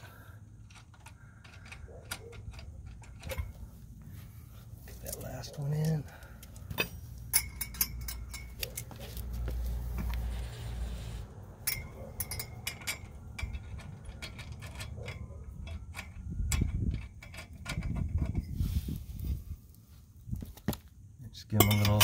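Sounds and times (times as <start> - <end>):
lug nuts clicking on metal: 0.4 - 3.9, 11.6 - 18.4, 21.5 - 22.0.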